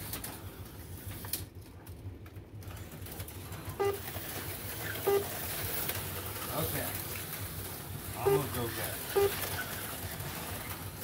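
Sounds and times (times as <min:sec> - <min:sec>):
slot cars whirring on track: 0:03.0 - 0:11.0.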